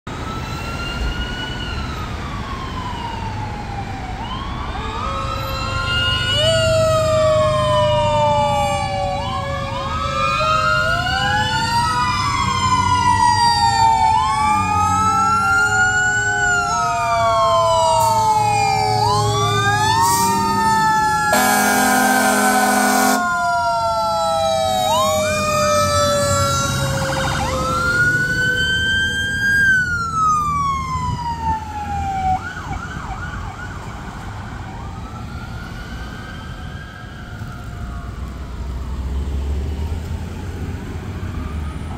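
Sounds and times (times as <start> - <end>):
fire truck sirens wailing: 0.1 - 41.9
low falling siren tone: 0.2 - 41.9
horn blast: 21.3 - 23.3.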